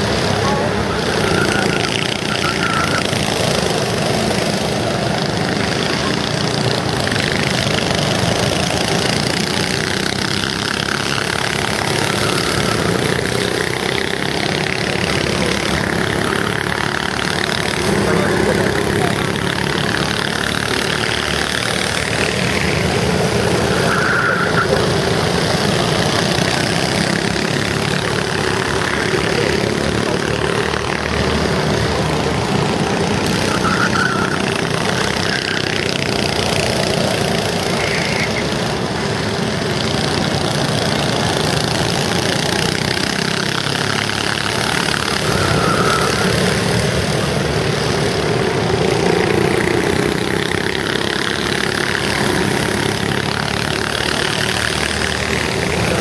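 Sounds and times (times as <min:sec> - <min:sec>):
go-kart engines running: 0:00.0 - 0:56.0
short high-pitched tones: 0:00.3 - 0:03.6, 0:11.6 - 0:13.6, 0:22.6 - 0:25.1, 0:44.7 - 0:47.2.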